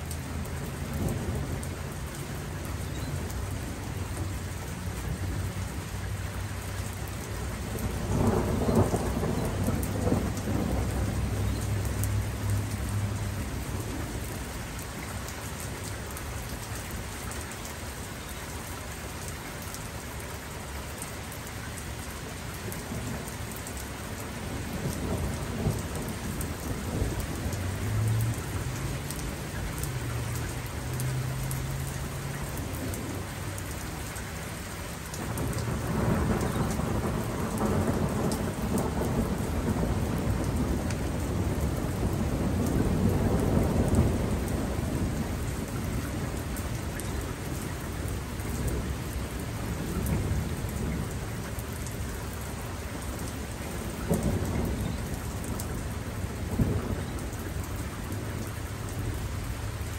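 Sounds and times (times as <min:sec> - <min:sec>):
rain pattering: 0:00.0 - 0:59.9
rolling thunder: 0:07.6 - 0:14.0, 0:24.4 - 0:30.0, 0:35.2 - 0:51.5, 0:53.6 - 0:57.2.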